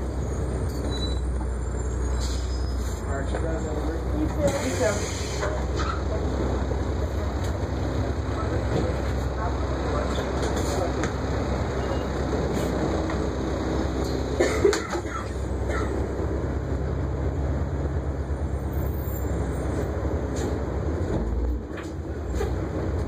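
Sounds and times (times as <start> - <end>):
bus engine running: 0.0 - 23.0
bus doors clunking shut: 14.0 - 16.1.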